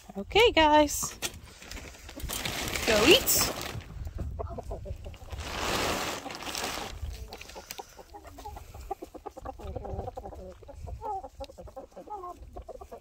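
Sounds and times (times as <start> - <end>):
rustling: 1.5 - 4.0, 5.1 - 7.8
chickens clucking: 3.8 - 13.0.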